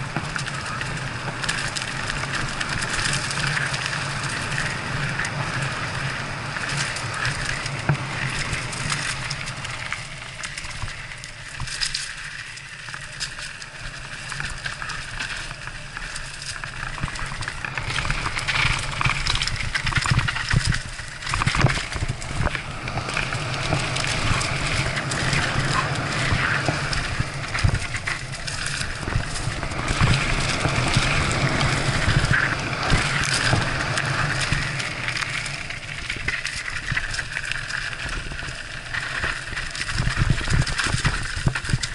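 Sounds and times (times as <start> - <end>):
bike rattling over bumps: 0.0 - 41.9
bike tyres on dirt: 0.0 - 41.9
wind rushing over microphone: 17.6 - 37.2.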